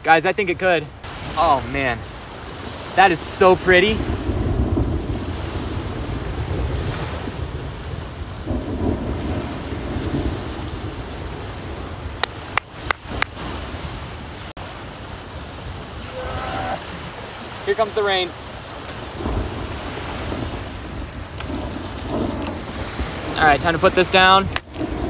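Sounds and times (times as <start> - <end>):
small waves washing onto sand: 0.0 - 25.0
wind buffeting microphone: 1.0 - 25.0.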